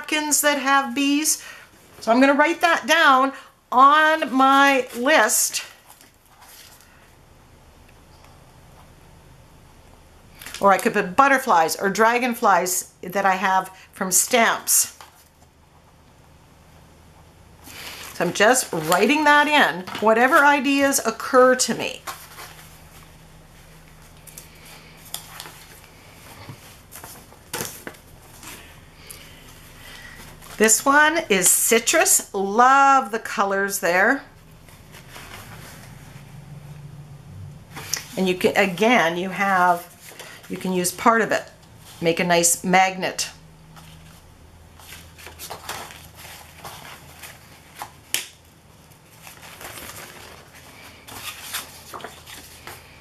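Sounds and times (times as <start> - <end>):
faint steady hum: 0.0 - 53.0
paper napkins rustling: 4.1 - 7.0, 17.6 - 31.8, 34.3 - 36.4, 43.7 - 48.1, 48.7 - 53.0.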